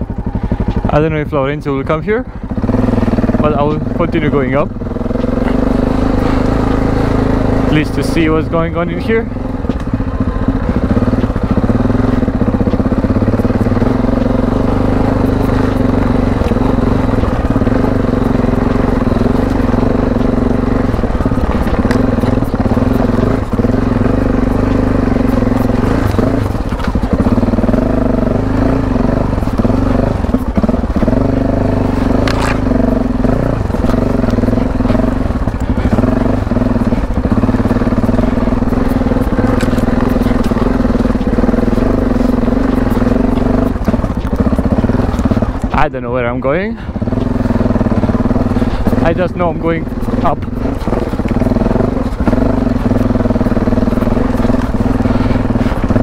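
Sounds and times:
motorcycle engine running: 0.0s - 56.0s
stones crunching under tyres: 2.5s - 56.0s.

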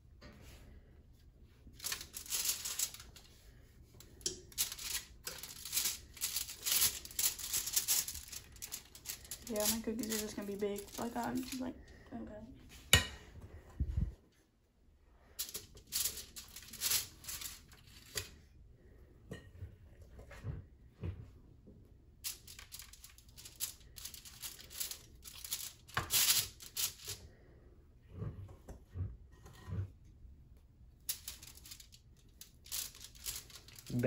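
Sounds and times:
aluminium foil crinkling: 1.7s - 11.8s, 15.4s - 18.3s, 22.2s - 27.2s, 31.1s - 34.0s.

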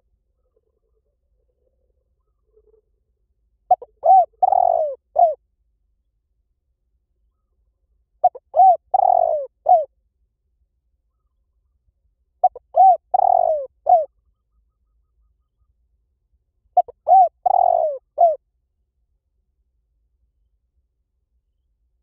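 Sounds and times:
dove cooing: 3.7s - 5.4s, 8.2s - 9.9s, 12.4s - 14.1s, 16.8s - 18.4s.

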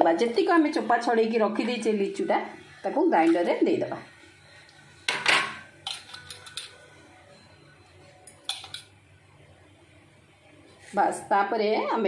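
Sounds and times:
bowl clinking against metal: 5.4s - 6.8s, 8.3s - 8.9s.

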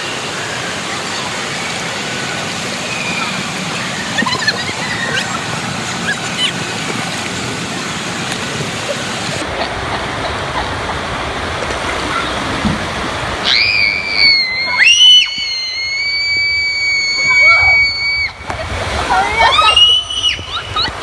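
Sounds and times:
crowd noise echoing in a hall: 0.0s - 21.0s
water rushing through a tube slide: 0.0s - 21.0s
loud high-pitched scream: 13.4s - 18.4s, 19.4s - 20.9s.

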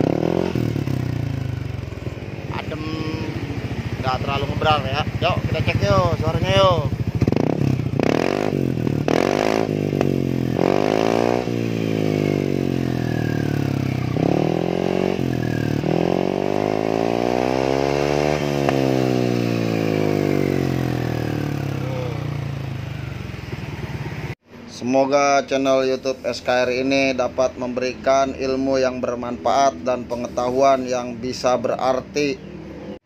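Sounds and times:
scooter engine revving: 0.0s - 24.4s.

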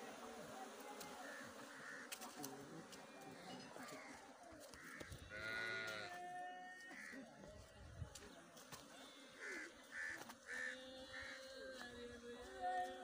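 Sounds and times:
crow cawing: 1.2s - 2.2s, 4.8s - 5.2s, 9.4s - 11.4s.

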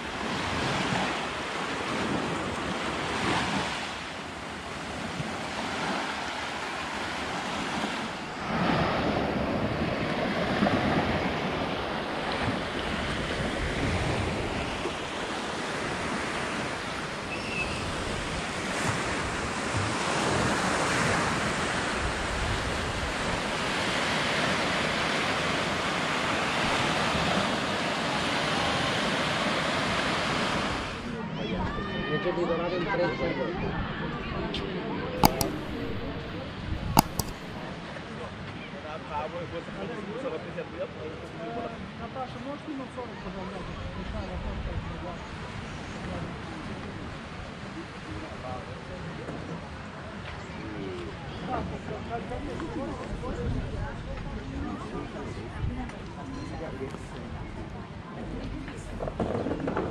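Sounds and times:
small waves washing on sand: 0.0s - 31.2s, 35.2s - 38.0s.

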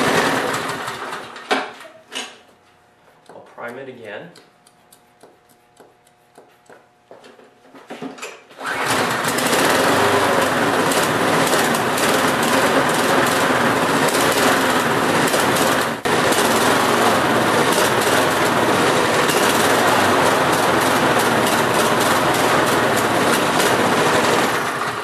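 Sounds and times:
lawnmower engine running: 0.0s - 1.5s, 8.6s - 25.0s.

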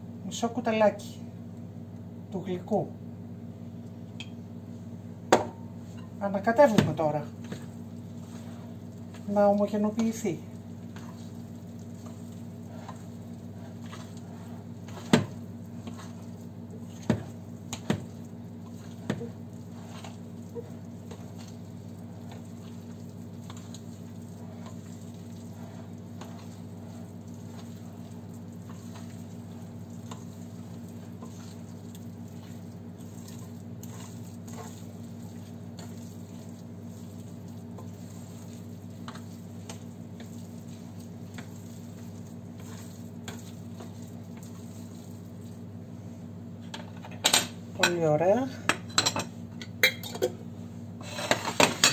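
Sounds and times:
steady low hum: 0.0s - 51.9s
batter mixing in glass bowl: 5.3s - 45.8s.

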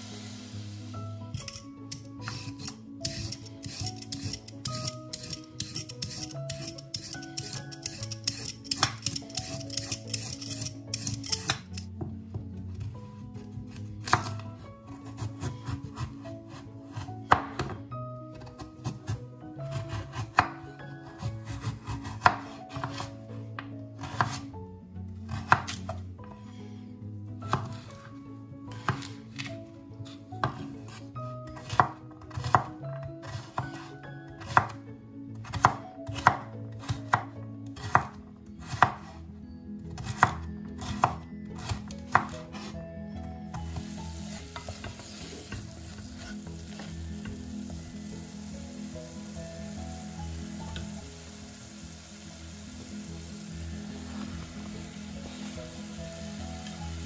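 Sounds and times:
vegetables sizzling in a pot: 0.0s - 1.3s, 43.6s - 57.0s
knife chopping on wooden board: 14.0s - 20.6s, 21.2s - 23.1s, 24.0s - 24.4s, 25.3s - 25.9s, 28.8s - 29.2s, 30.4s - 33.8s, 34.4s - 34.8s, 35.4s - 39.2s, 40.0s - 42.7s
wooden spoon stirring: 44.3s - 47.4s.

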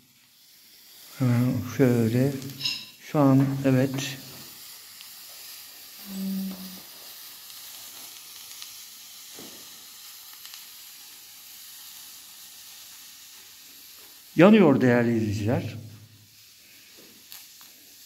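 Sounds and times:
faint sizzling hiss: 0.0s - 18.0s.

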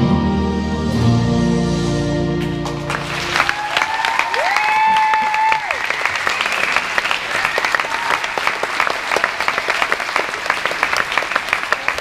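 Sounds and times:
large audience applauding: 2.4s - 12.0s.

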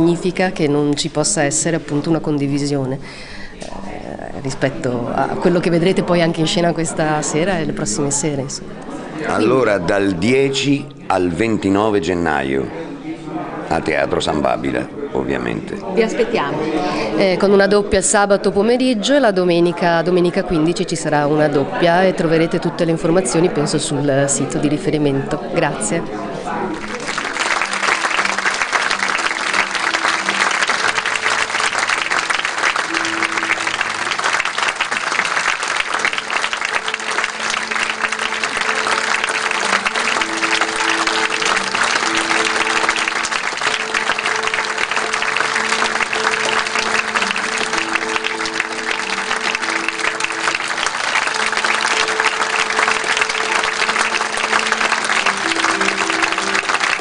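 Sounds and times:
audience applauding: 26.7s - 57.0s
slow melody of held notes: 27.2s - 57.0s.

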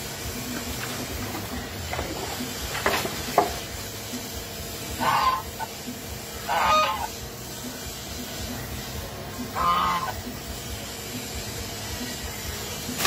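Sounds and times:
goose honking: 5.0s - 5.7s, 6.5s - 7.1s, 9.5s - 10.2s.

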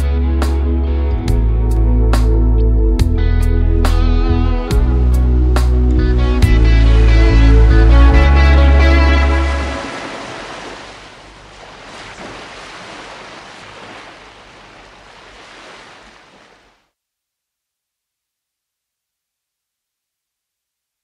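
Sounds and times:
held music chord: 0.2s - 10.7s
small waves washing onto beach: 9.3s - 16.8s.

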